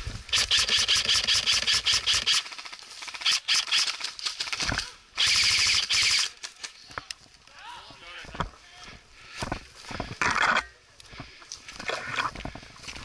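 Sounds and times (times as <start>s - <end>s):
airsoft rifles firing bursts: 0.3s - 6.4s.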